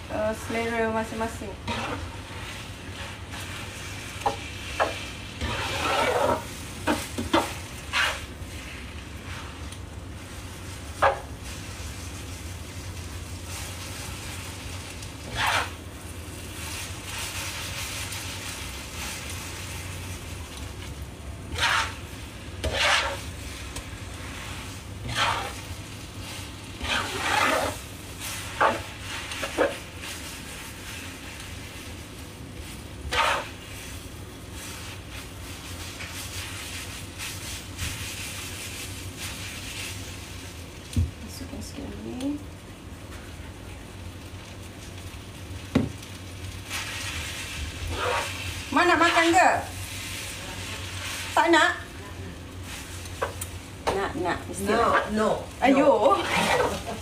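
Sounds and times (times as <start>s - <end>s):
noodles sizzling in a wok: 0.0s - 57.0s
spatula scraping and knocking pan: 0.4s - 9.7s, 10.9s - 11.3s, 15.2s - 15.8s, 21.5s - 31.0s, 33.1s - 33.9s, 46.7s - 51.4s, 52.7s - 54.1s, 56.0s - 57.0s.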